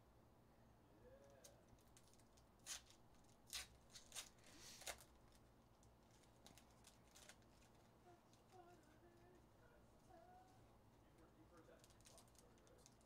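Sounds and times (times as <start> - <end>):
foil wrapper crinkling: 1.4 - 9.4, 11.6 - 13.0.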